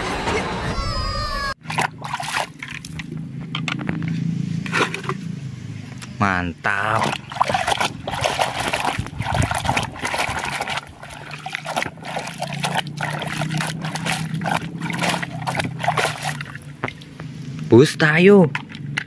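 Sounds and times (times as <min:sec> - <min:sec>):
water splashing in a plastic tub: 0:01.6 - 0:03.1, 0:06.7 - 0:17.4, 0:18.4 - 0:19.0.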